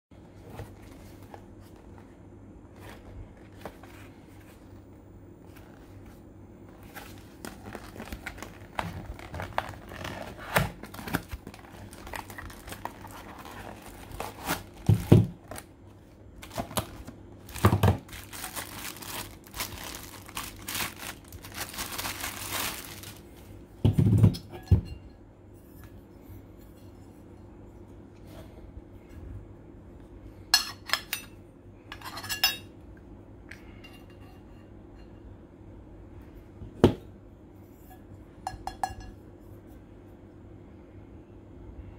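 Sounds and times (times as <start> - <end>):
plastic bag crinkling: 7.1 - 15.7, 16.4 - 23.3.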